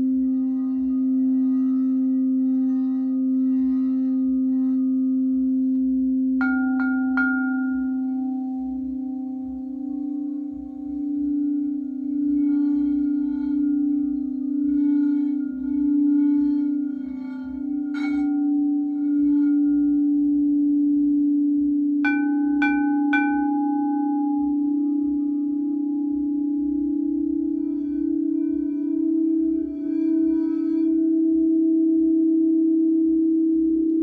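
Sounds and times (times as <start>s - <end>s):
singing bowl ringing tone: 0.0s - 34.0s
higher-pitched bowl strikes: 5.7s - 32.2s
singing bowl strike: 6.4s - 21.3s, 22.0s - 31.2s.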